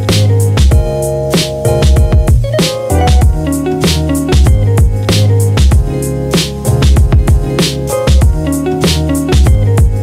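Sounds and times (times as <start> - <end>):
background music with drum beat: 0.0 - 10.0.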